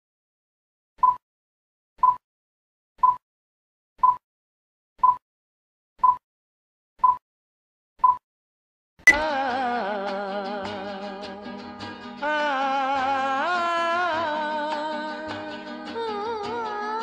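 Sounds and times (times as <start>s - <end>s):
short electronic countdown beeps: 1.0s - 1.2s, 2.0s - 2.2s, 3.0s - 3.2s, 4.0s - 4.2s, 5.0s - 5.2s, 6.0s - 6.2s, 7.0s - 7.2s, 8.0s - 8.2s.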